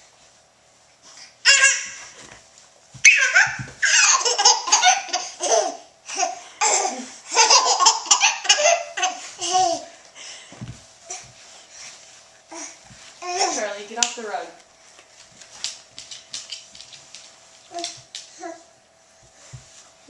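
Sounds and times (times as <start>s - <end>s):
baby laughing: 1.4s - 2.0s, 3.1s - 9.9s.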